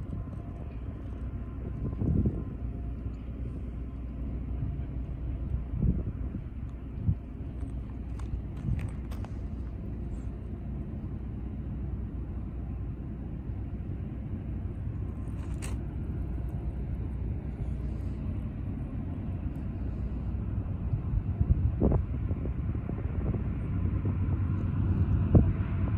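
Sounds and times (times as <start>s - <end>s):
distant diesel train rumble: 0.0s - 25.9s.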